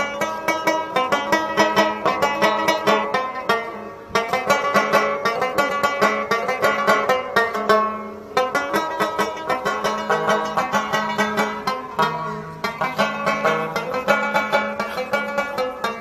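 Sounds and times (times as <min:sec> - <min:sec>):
plucked string instrument: 0:00.0 - 0:16.0.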